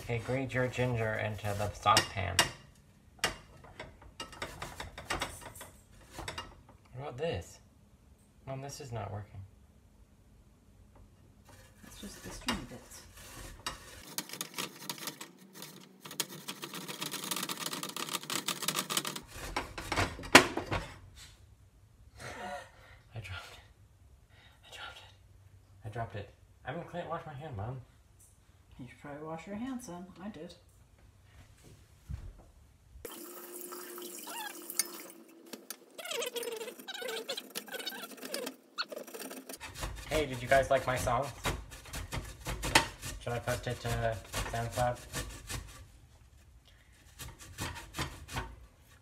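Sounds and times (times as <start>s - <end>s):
ginger rasping on metal grater: 11.5s - 19.6s, 36.1s - 45.9s, 47.1s - 48.5s.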